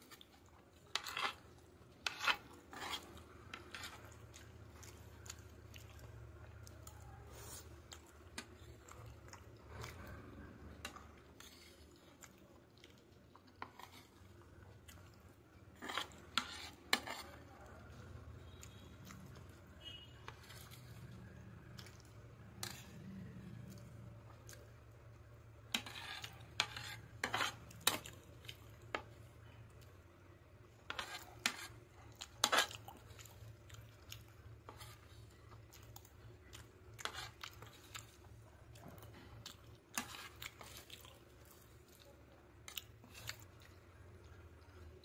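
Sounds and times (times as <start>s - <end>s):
close-up chewing: 0.0s - 24.7s, 30.8s - 45.0s
metal spoon scraping a plate: 0.9s - 1.4s, 2.0s - 4.1s, 15.8s - 17.4s, 19.8s - 21.0s, 22.6s - 23.0s, 25.7s - 28.0s, 30.9s - 31.8s, 32.4s - 32.8s, 37.0s - 37.7s.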